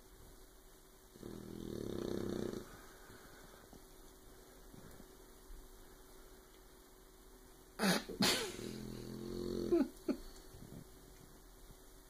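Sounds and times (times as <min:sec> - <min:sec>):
puppy snoring and snorting: 0:01.2 - 0:02.8, 0:08.6 - 0:09.9.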